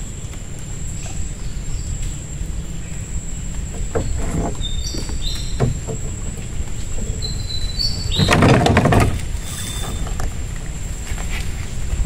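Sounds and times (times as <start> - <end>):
steady low rumble: 0.0 - 12.0
soft knocks: 3.7 - 6.5
chirping bird calls: 3.7 - 8.8.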